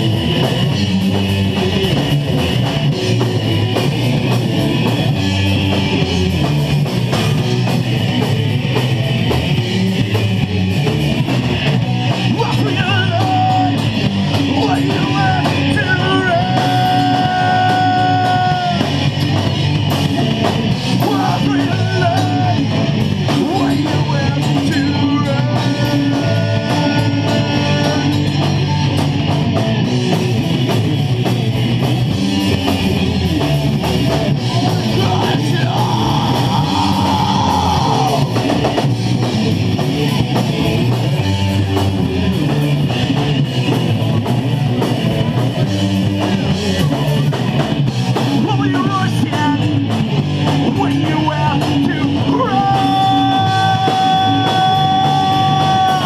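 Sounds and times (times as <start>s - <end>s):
bass: 0.0s - 56.0s
distorted electric guitars: 0.0s - 56.0s
drum kit: 0.0s - 56.0s
person singing: 14.5s - 19.1s, 21.0s - 29.0s, 34.2s - 38.7s, 46.0s - 56.0s.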